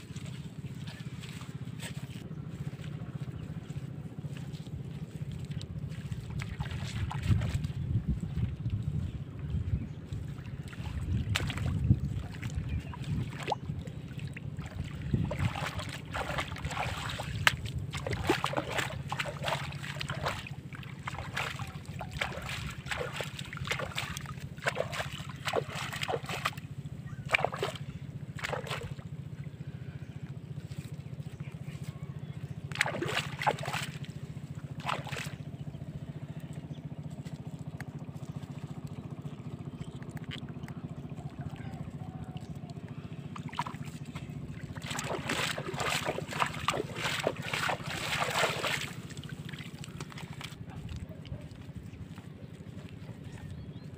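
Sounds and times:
muddy water sloshing and splashing: 0:00.0 - 0:53.9
steady low rumble: 0:00.0 - 0:53.9.

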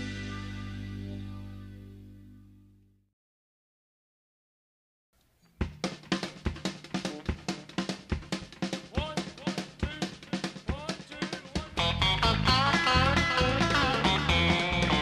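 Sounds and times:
drum kit beat: 0:00.0 - 0:00.8, 0:05.6 - 0:15.0
sliding pitched notes: 0:11.8 - 0:15.0.

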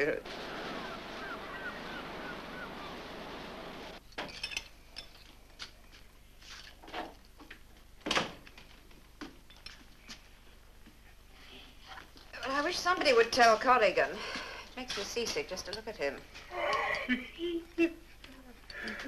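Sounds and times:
wind and sea rushing: 0:00.2 - 0:04.0.

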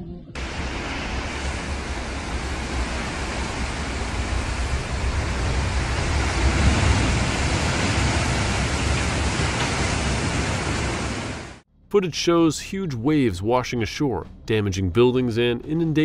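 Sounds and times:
wind: 0:00.0 - 0:11.6
waves breaking: 0:00.4 - 0:11.6.

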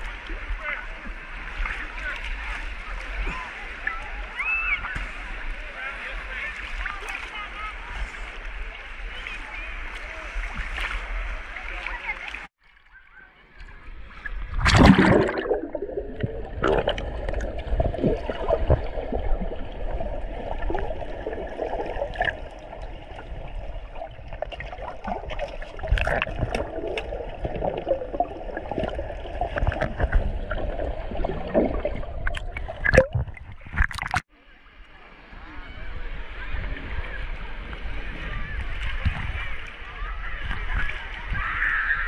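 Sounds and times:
muffled underwater wash: 0:00.0 - 0:42.0
water splash: 0:13.7 - 0:34.3
bubbles popping underwater: 0:14.6 - 0:22.6, 0:24.4 - 0:34.2.

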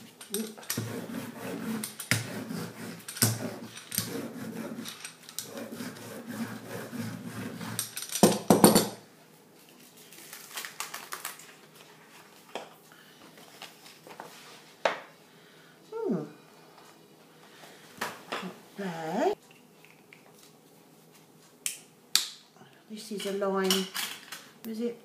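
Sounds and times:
rubber roller rolling over paper: 0:00.0 - 0:08.0.

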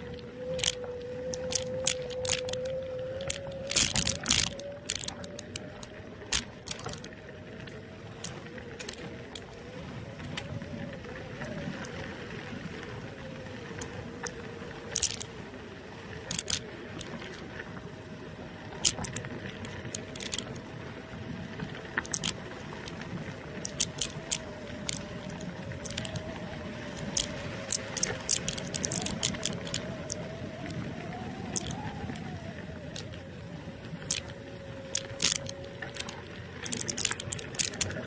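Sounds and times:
tyres rumbling on gravel: 0:00.0 - 0:07.2, 0:11.4 - 0:33.4, 0:34.0 - 0:38.0
electric scooter motor whine: 0:00.0 - 0:36.7
scooter rattling over bumps: 0:21.4 - 0:30.3.

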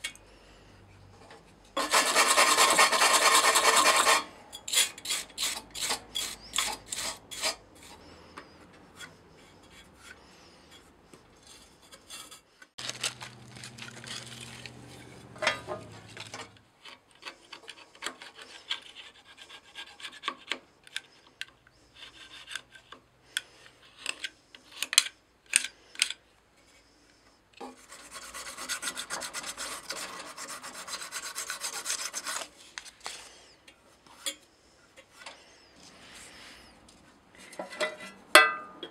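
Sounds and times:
metal blade scraping metal: 0:01.8 - 0:07.9.

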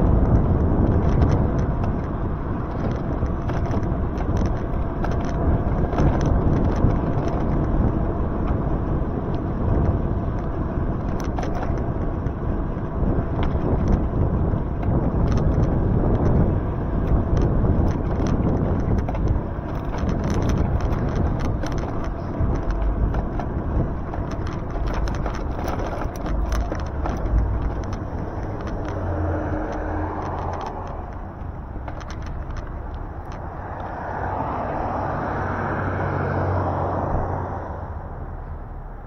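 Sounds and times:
light clicks and rattles: 0:00.0 - 0:08.6, 0:09.2 - 0:35.0
tyres rumbling on wet road: 0:00.0 - 0:39.0
wind: 0:00.0 - 0:39.0.

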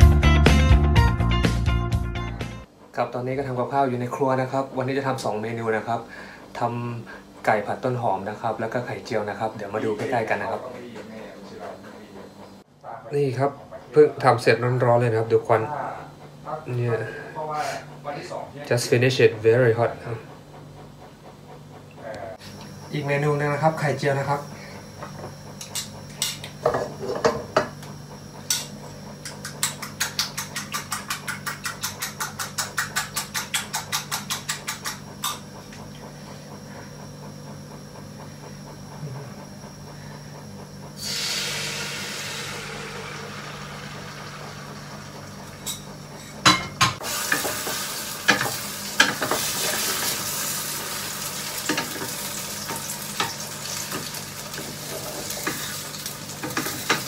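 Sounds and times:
fork beating eggs in a bowl: 0:28.5 - 0:35.4
hiss of food hitting hot wok: 0:41.0 - 0:44.1, 0:47.0 - 0:52.1
frying sizzle in a wok: 0:41.0 - 0:46.0, 0:46.8 - 0:57.0.

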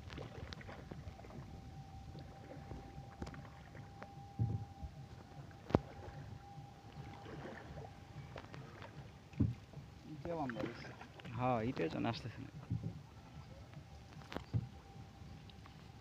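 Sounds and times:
water splashing and dripping: 0:00.0 - 0:01.4, 0:02.1 - 0:12.9
faint high hum: 0:00.0 - 0:16.0
dull thump: 0:04.4 - 0:04.6.

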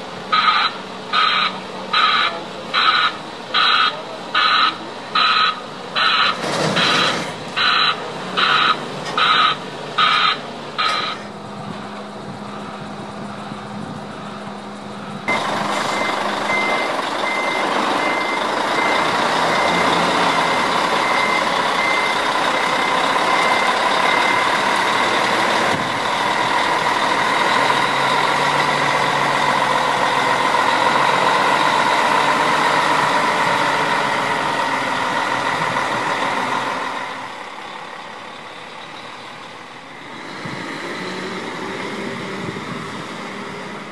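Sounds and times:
diesel truck engine running: 0:00.0 - 0:43.9
reversing beeper: 0:00.3 - 0:11.3, 0:15.0 - 0:26.4.

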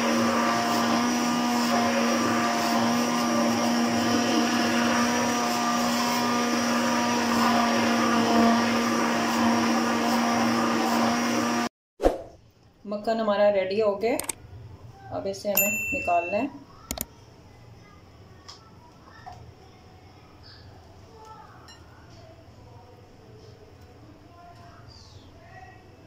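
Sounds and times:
electric hand blender running: 0:00.0 - 0:11.7.

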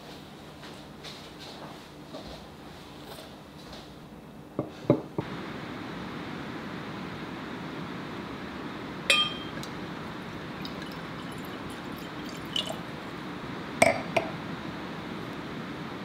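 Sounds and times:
bottle clinking wine glass: 0:09.1 - 0:09.7, 0:13.8 - 0:14.3
wine pouring into glass: 0:09.1 - 0:13.2.

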